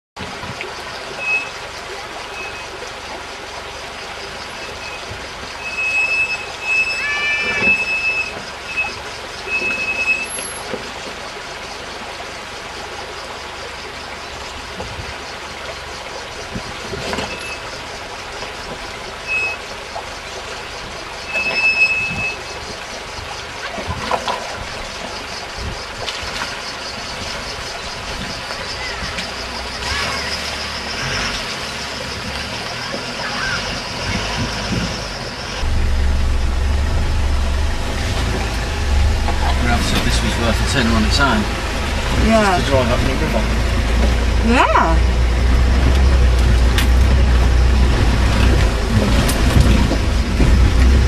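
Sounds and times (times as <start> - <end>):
vehicle engine running low: 0.2 - 51.0
short high squeals: 4.7 - 10.7, 19.2 - 19.7, 21.2 - 22.6.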